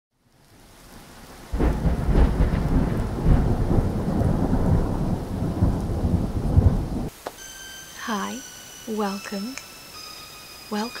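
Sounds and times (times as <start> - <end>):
rain hiss: 0.2 - 11.0
low rumble of thunder: 1.3 - 7.1.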